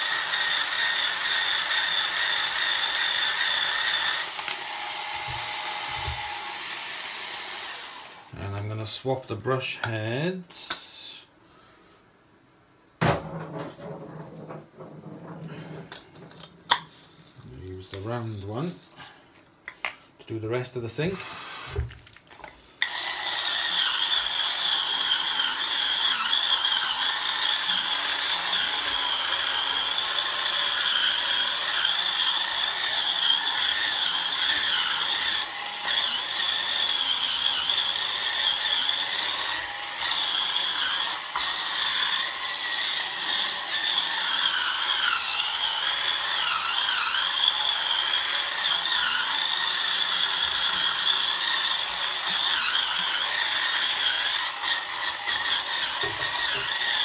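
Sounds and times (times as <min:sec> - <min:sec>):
rotating brush motor whine: 0:00.0 - 0:08.3, 0:22.8 - 0:57.0.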